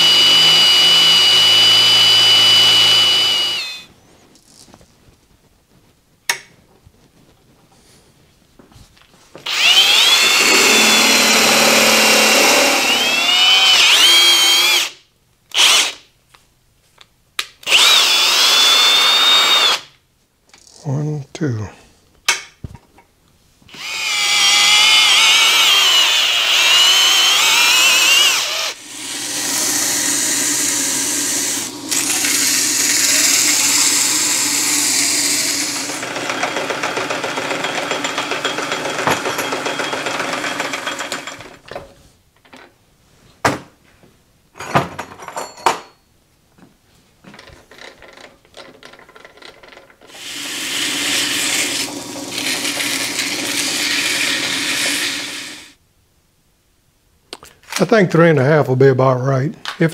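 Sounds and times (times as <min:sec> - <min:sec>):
drill motor whine: 0:00.0 - 0:03.9, 0:09.5 - 0:15.0, 0:17.7 - 0:19.8, 0:23.7 - 0:41.4, 0:50.1 - 0:55.8
lathe running: 0:00.0 - 0:03.9, 0:09.5 - 0:14.9, 0:23.8 - 0:41.6, 0:50.1 - 0:55.7.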